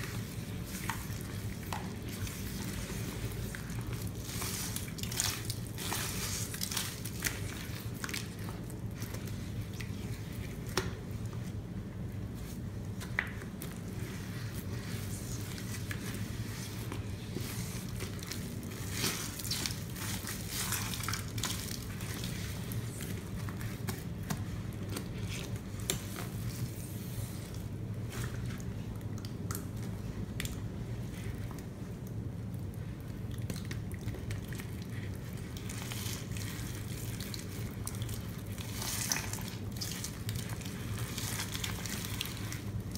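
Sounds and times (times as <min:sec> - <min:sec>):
sponge scrubbing wet paste: 0:00.0 - 0:10.8, 0:13.5 - 0:27.5.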